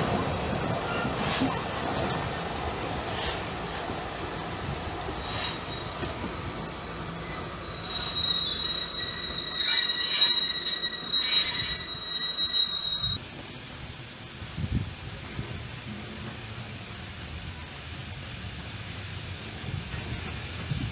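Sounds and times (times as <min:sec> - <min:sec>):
low train rumble: 0:00.0 - 0:20.9
train wheels squealing on rails: 0:00.6 - 0:01.6, 0:03.1 - 0:13.2.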